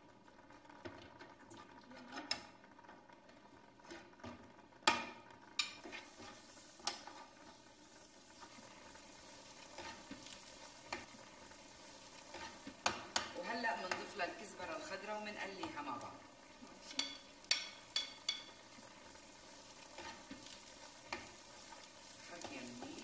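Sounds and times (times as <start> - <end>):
food sizzling: 0.0 - 23.0
metal spoon scraping frying pan: 5.6 - 7.4
metal clinking on pan: 16.9 - 18.6.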